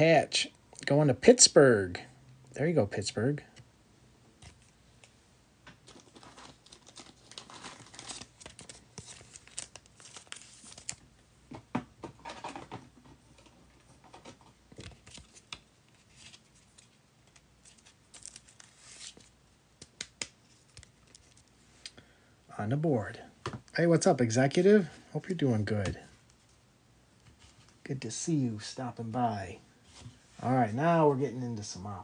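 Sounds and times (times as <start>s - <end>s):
plastic wrap tearing and crinkling: 5.8s - 11.0s, 14.8s - 21.5s
small clicks and rustles: 19.9s - 22.0s.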